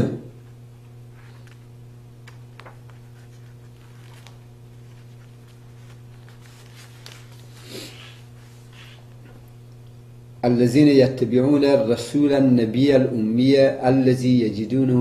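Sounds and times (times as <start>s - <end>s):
low electrical hum: 0.0s - 15.0s
paper cards rustling: 1.1s - 9.4s.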